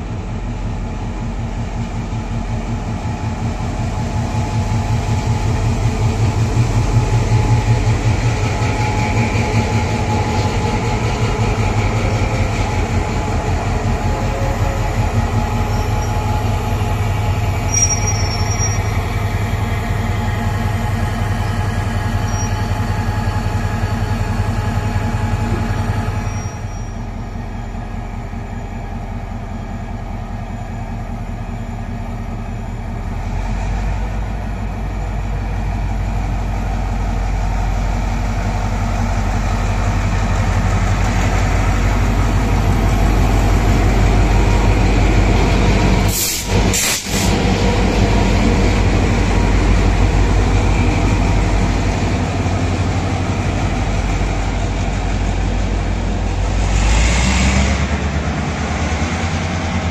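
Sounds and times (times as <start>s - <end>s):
diesel locomotive running: 0.0s - 59.9s
train wheels rolling: 4.4s - 27.0s.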